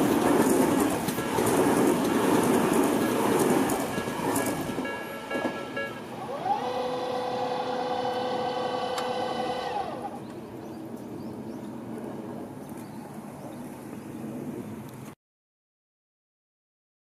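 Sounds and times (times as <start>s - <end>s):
electric train passing: 0.0s - 12.6s
train horn: 1.1s - 2.2s, 2.9s - 10.0s.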